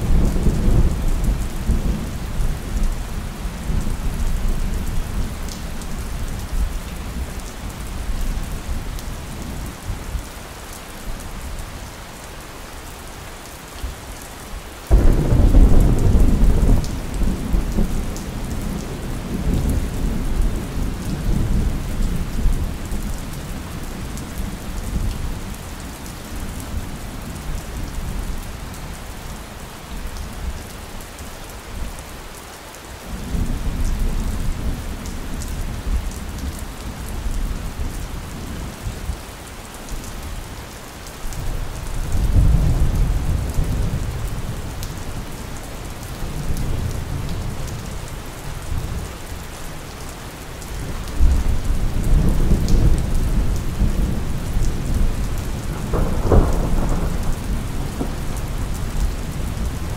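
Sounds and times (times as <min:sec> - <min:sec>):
steady rain: 0:00.0 - 0:59.9
rolling thunder: 0:14.9 - 0:22.8, 0:51.2 - 0:59.9
loud thunder clap: 0:55.7 - 0:58.2.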